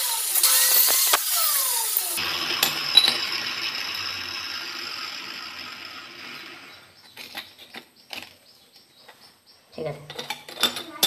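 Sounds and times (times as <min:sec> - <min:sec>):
electric cutter whirring: 0:00.0 - 0:07.1.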